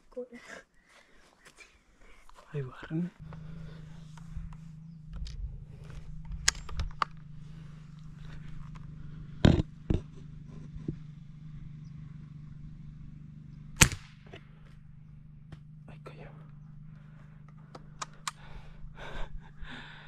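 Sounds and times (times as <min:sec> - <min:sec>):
steady low hum: 0:01.7 - 0:20.0
air rifle firing crack: 0:13.8 - 0:14.6
light clicks: 0:17.5 - 0:18.5.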